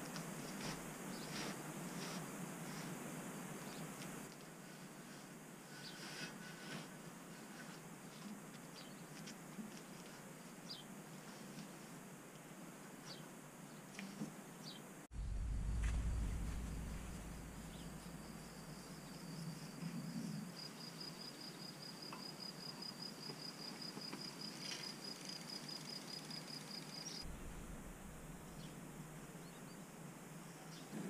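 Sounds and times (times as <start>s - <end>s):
low rumble: 15.1s - 19.3s, 27.2s - 30.0s
cricket trilling: 17.5s - 27.3s.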